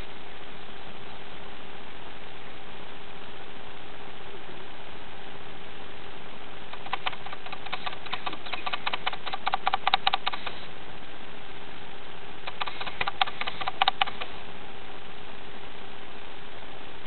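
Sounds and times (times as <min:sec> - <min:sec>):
faint hum: 0:00.0 - 0:17.0
steady hiss: 0:00.0 - 0:17.0
meerkats clicking calls: 0:06.7 - 0:10.7, 0:12.4 - 0:14.4.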